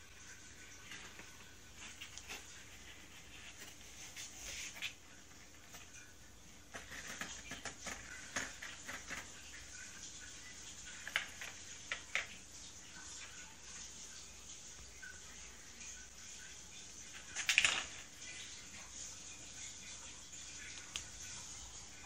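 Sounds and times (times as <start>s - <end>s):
claws scratching cardboard: 6.6s - 9.6s.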